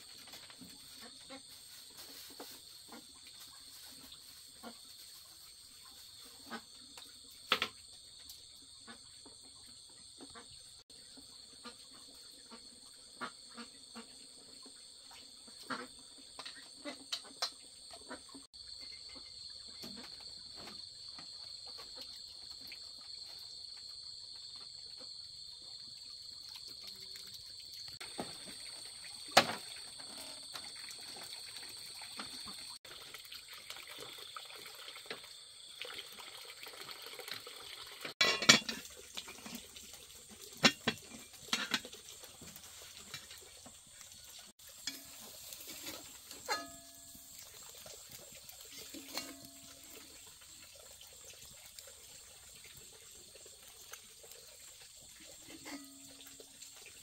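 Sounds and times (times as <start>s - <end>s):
night insects chorus: 0.1s - 39.7s.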